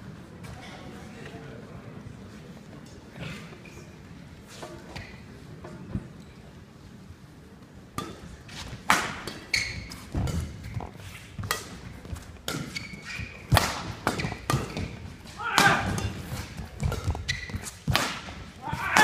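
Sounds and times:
rackets striking shuttlecock: 8.0 - 19.0.

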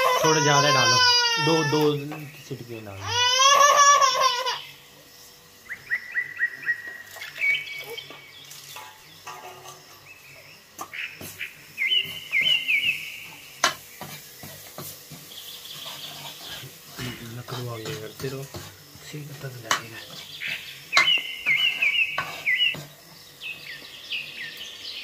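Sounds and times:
baby crying: 0.0 - 2.0, 3.0 - 4.7
small bird chirping: 4.4 - 25.0.

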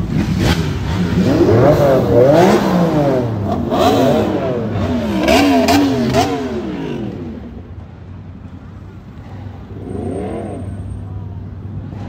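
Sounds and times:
car engine revving: 0.0 - 7.7.

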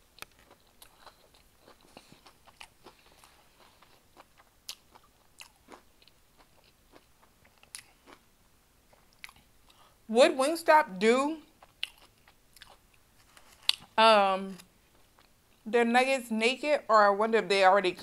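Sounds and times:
chewing fried chicken: 0.0 - 8.3, 8.9 - 9.9, 11.5 - 14.0.

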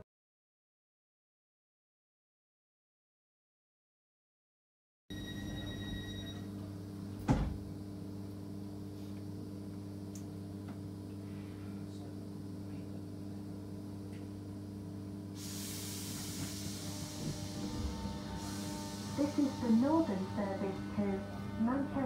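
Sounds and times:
train motors droning: 5.2 - 22.0
hiss: 15.4 - 19.5.

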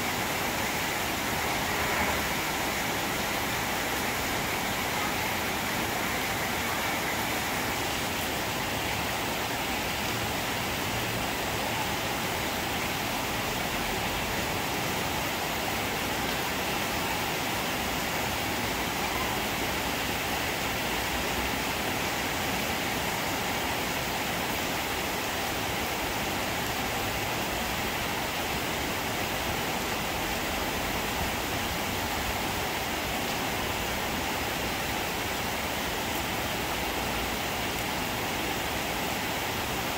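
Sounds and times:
rain falling on foliage: 0.0 - 39.9.

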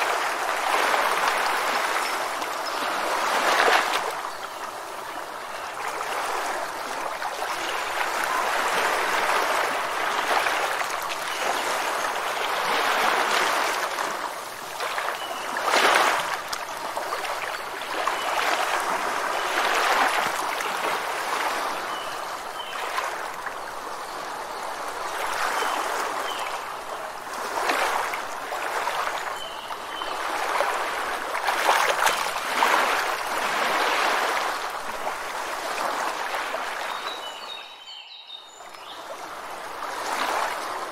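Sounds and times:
rushing foaming water: 0.0 - 23.9.

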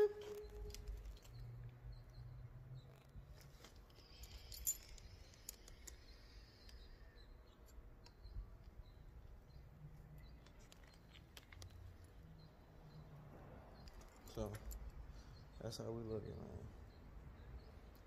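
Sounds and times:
small clicks: 2.8 - 8.8, 10.2 - 12.2.

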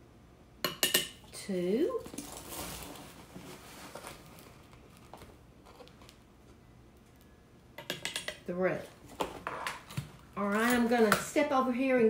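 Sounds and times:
dry flakes rustling: 2.0 - 6.5.

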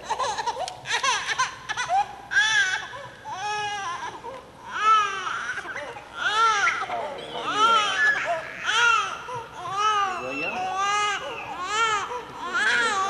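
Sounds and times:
infant crying: 0.0 - 13.0.

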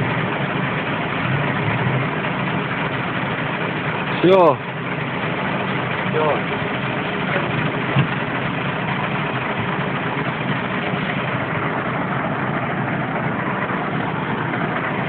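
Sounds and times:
diesel truck engines idling: 0.0 - 15.0.

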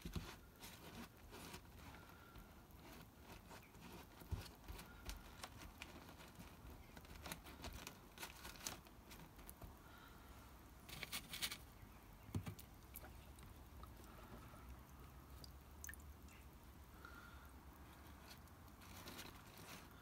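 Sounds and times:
crinkly clicks: 4.4 - 9.7.

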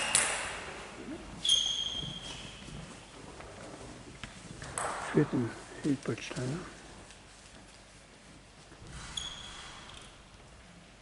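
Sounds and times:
high steady squeak: 1.4 - 2.6, 9.0 - 10.1.

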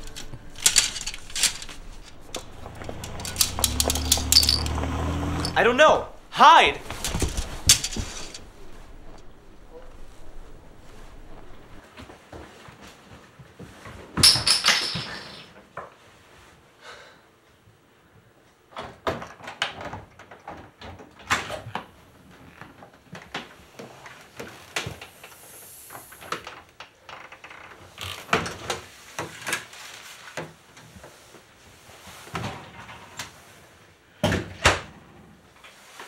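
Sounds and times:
door opening: 0.0 - 11.8
knocks and clunks: 0.0 - 11.8.

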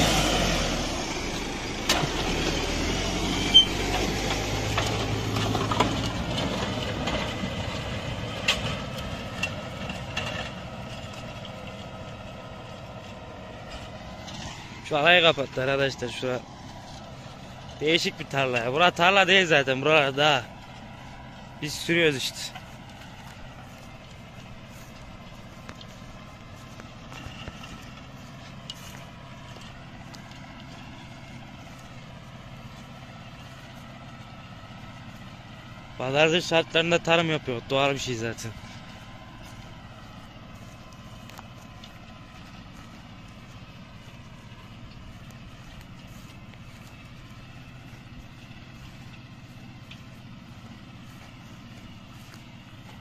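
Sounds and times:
tractor diesel engine running: 0.0 - 53.0
sharp knocks and rattles: 3.9 - 11.8.

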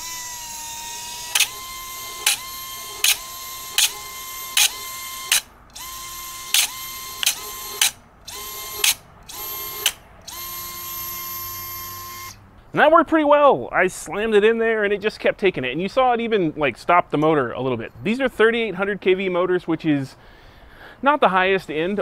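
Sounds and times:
drone motor whining: 0.0 - 12.4.

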